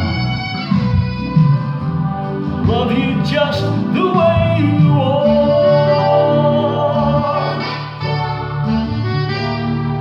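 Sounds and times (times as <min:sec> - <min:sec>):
electric piano accompaniment: 0:00.0 - 0:10.0
man singing: 0:02.6 - 0:08.0.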